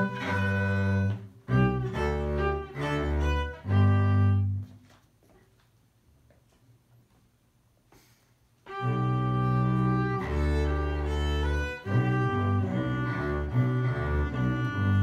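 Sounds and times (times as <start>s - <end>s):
bowed double bass: 0.0s - 4.7s, 8.7s - 15.0s
violin playing: 0.0s - 4.7s, 8.6s - 15.0s.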